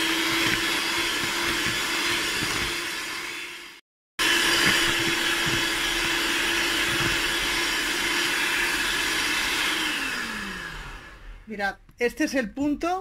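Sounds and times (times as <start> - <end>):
electric hand mixer whisking: 0.0 - 11.5.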